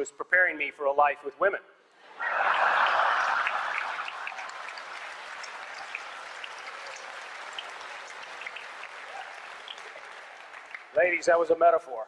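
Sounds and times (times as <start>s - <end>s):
audience laughing: 2.0s - 5.2s
audience clapping: 2.1s - 11.6s.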